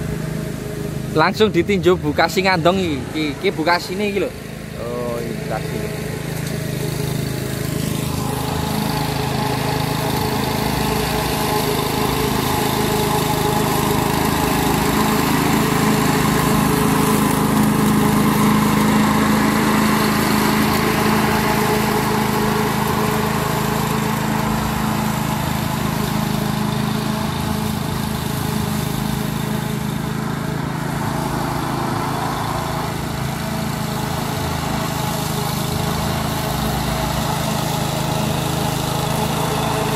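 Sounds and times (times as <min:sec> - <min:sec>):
lawn mower engine cutting grass: 0:00.0 - 0:39.9.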